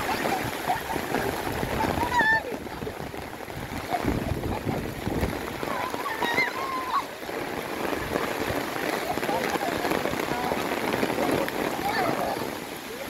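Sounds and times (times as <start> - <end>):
heavy rain falling: 0.0 - 13.0.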